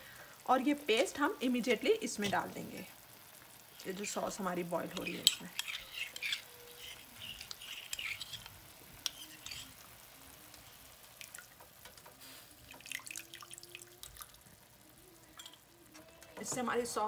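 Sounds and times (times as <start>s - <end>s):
spoon scraping ceramic ramekin: 4.9s - 9.8s.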